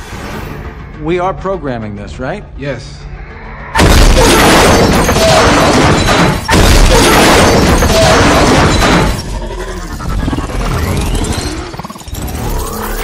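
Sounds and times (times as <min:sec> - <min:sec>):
explosion sound effects: 0:03.7 - 0:09.2.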